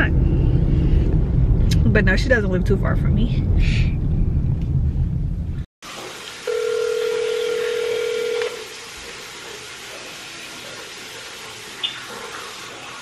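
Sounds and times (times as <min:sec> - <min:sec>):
telephone ringback tone: 0:06.4 - 0:08.6.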